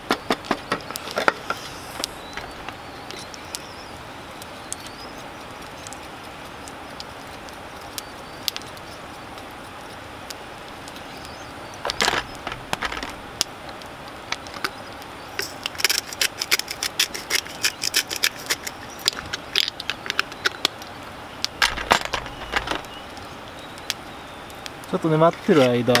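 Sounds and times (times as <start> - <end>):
handling knocks: 11.8 - 13.2, 21.6 - 22.9.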